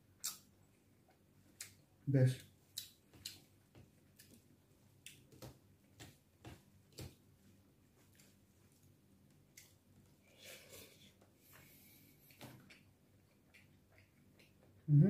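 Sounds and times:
wet eating sound: 12.2s - 14.9s.

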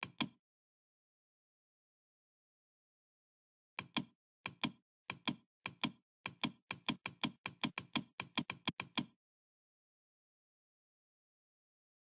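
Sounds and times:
computer mouse clicking: 0.0s - 0.4s, 3.8s - 9.2s.

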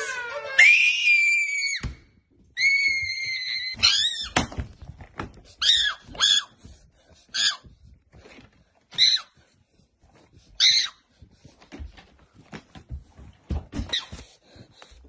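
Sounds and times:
high-pitched screaming: 0.0s - 1.8s.

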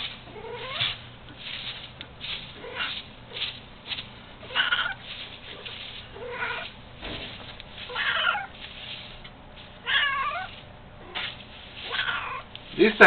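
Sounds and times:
kitten meowing: 0.3s - 1.0s, 4.4s - 5.0s, 7.9s - 8.5s, 9.8s - 11.2s, 11.8s - 12.5s.

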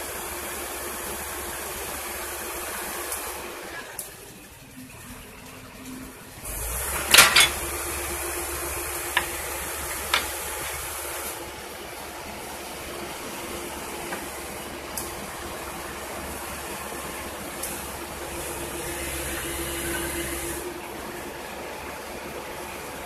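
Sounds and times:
excavator diesel engine running: 0.0s - 23.0s
steel tracks clanking on steel deck: 6.8s - 8.1s, 9.1s - 11.0s.

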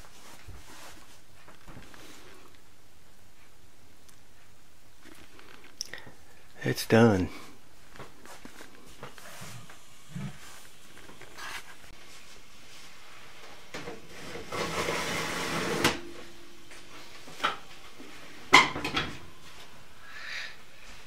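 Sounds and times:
metal scraping rustle: 13.9s - 16.3s.

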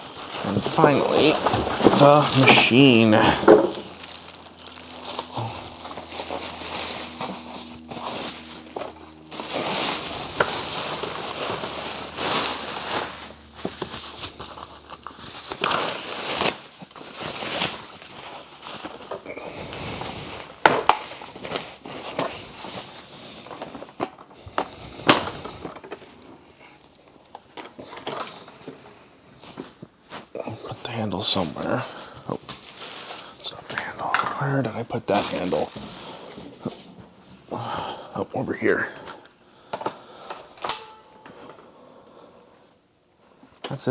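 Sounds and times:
plastic bag crinkling: 0.0s - 28.7s, 30.8s - 37.2s.

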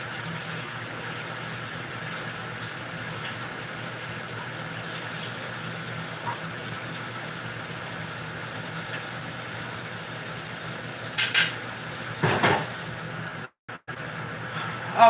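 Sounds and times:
kitchenware clattering: 11.2s - 11.6s.

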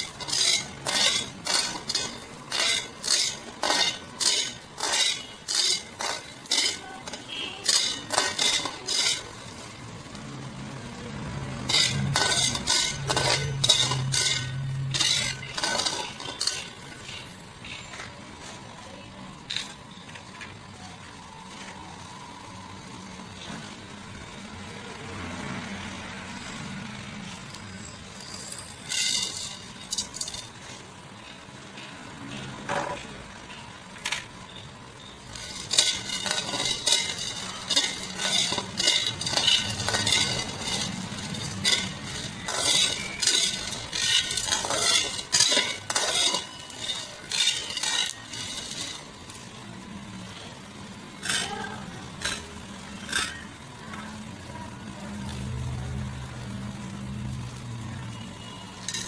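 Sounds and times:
metal spatula scraping a wok: 0.0s - 10.1s, 11.5s - 18.5s, 27.5s - 31.4s, 34.5s - 54.6s, 58.4s - 59.0s.

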